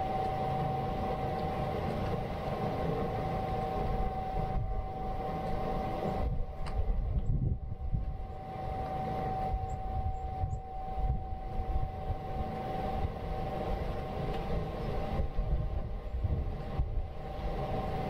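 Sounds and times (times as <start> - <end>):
mid-pitched hum: 0.0 - 18.0
steady low rumble: 0.0 - 18.0.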